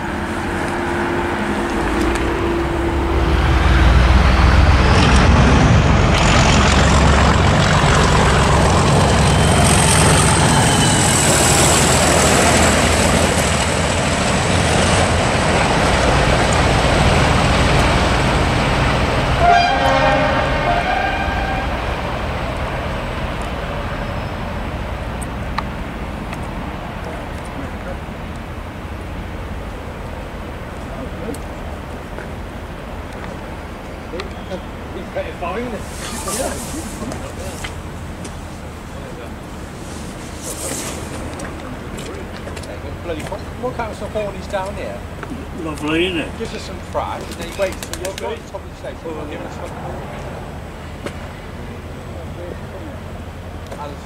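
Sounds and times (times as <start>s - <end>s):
diesel locomotive engine rumble: 0.0s - 54.0s
thin high whine: 8.2s - 12.8s
train horn toot: 19.4s - 22.0s.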